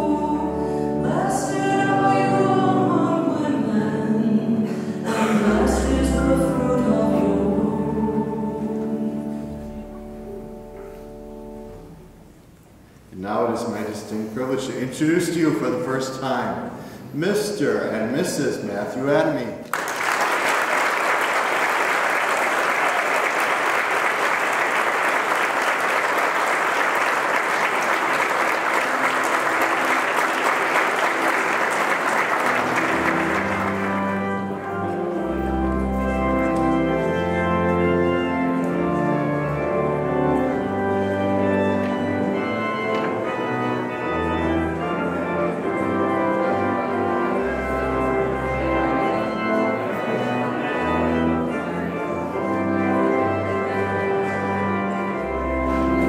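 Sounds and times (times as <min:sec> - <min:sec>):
organ playing slow chords: 0:00.0 - 0:56.0
congregation applauding: 0:19.2 - 0:52.4.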